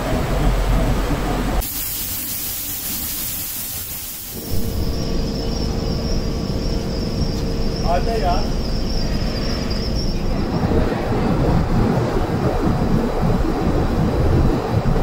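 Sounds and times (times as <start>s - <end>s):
steady bright hiss: 1.6s - 5.3s
high-pitched whine: 4.2s - 15.0s
low machine rumble: 4.4s - 15.0s.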